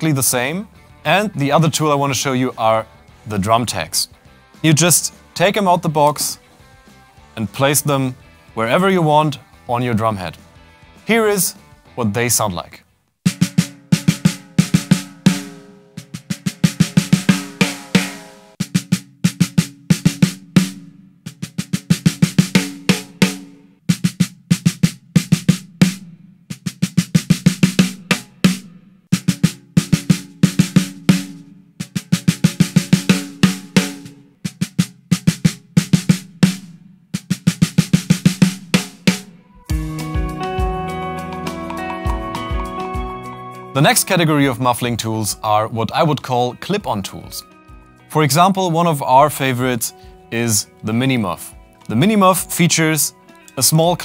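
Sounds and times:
snare drum played with sticks: 13.3 - 39.8.

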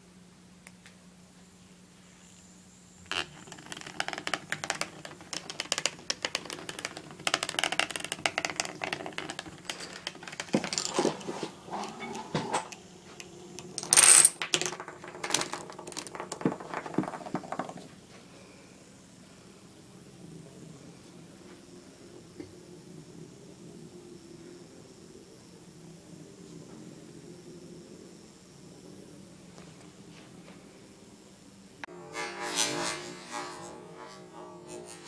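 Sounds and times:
toy parts clicking and rattling: 3.1 - 11.4, 13.6 - 17.8.

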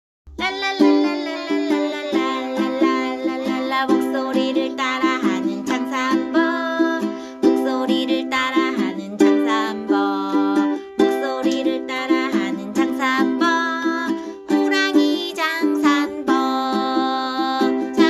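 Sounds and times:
upbeat song with plucked strings: 0.3 - 18.0.

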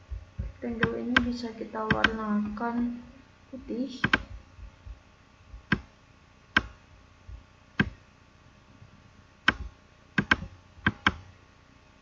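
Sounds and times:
computer mouse clicking: 0.4 - 1.3, 1.9 - 2.2, 4.0 - 4.4, 5.6 - 5.9, 6.6 - 6.8, 7.8 - 8.0, 9.5 - 11.2.

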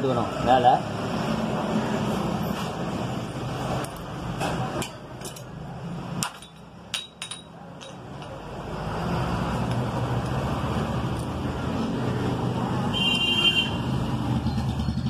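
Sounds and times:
low traffic hum: 0.0 - 15.0
metal parts clinking: 4.8 - 5.6, 6.2 - 8.4.

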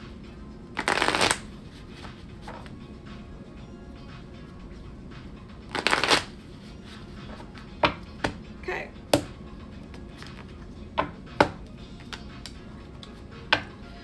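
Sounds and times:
cards being shuffled: 0.8 - 2.8, 5.7 - 7.6
card snaps and taps: 11.4 - 13.7.

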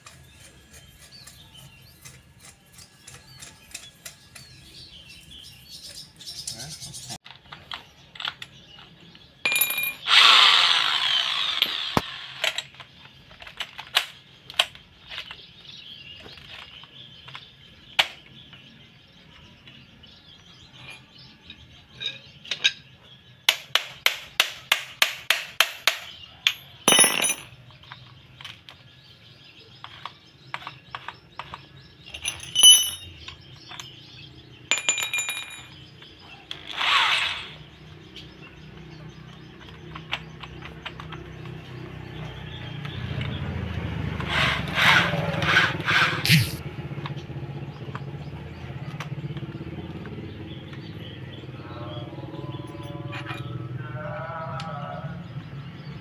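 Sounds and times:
metal parts clicking and clinking: 7.2 - 10.1, 25.8 - 28.6, 29.8 - 34.0, 34.7 - 36.8.

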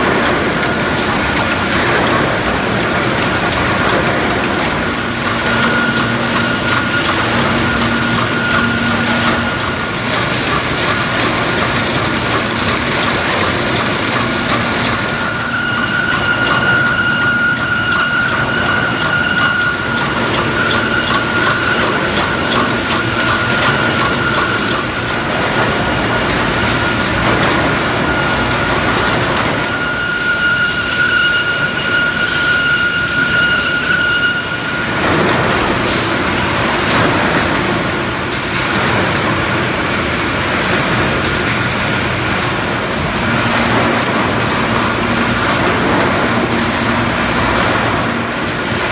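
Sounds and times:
packaging machine din: 0.0 - 30.0.

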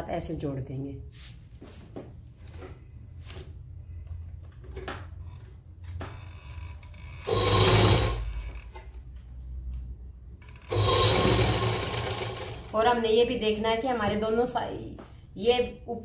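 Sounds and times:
sewing machine stitching: 6.4 - 8.9, 10.4 - 12.9.

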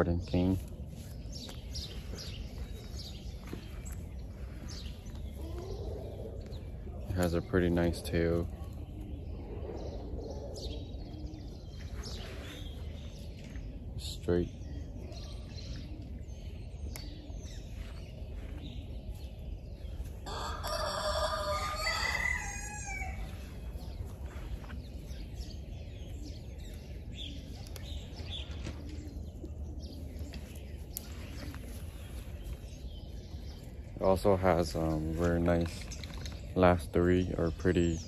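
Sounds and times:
rooster crowing: 20.2 - 23.3.

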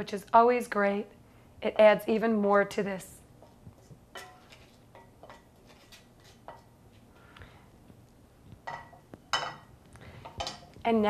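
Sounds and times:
metal utensil scraping in skillet: 3.4 - 6.8.

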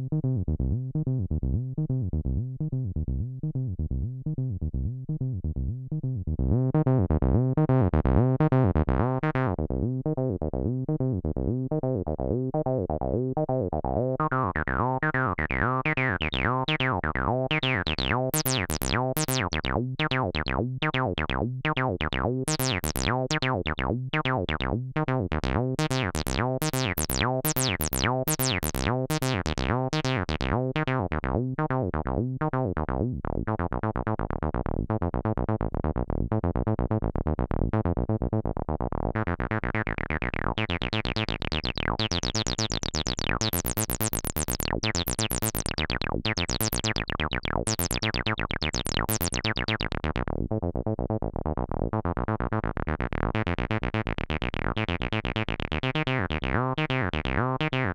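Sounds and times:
acid synth bass line: 11.8 - 57.9.

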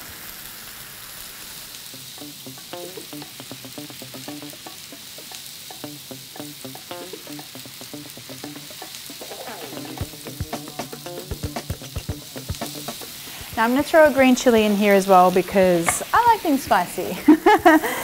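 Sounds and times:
chicken sizzling in a pan: 0.0 - 18.0
soft background music: 2.0 - 15.4.

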